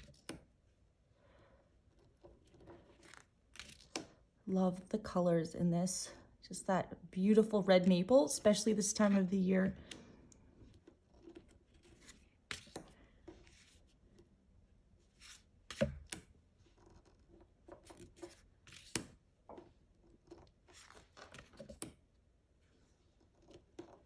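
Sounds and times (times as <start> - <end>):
cards swishing: 15.1 - 16.1.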